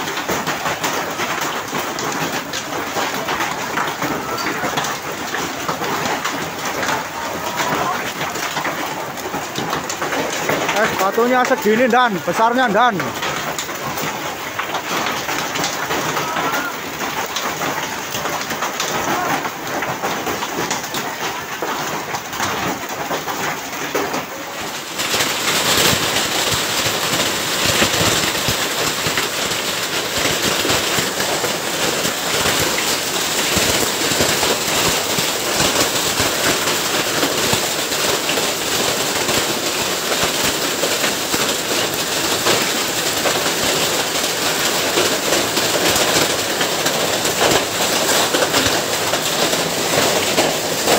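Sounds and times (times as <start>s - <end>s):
hail and heavy rain falling: 0.0s - 50.9s.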